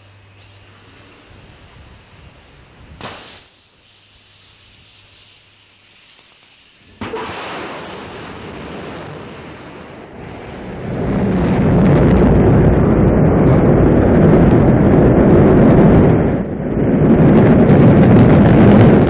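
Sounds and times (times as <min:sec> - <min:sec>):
rocket engine rumble: 0:06.8 - 0:19.0.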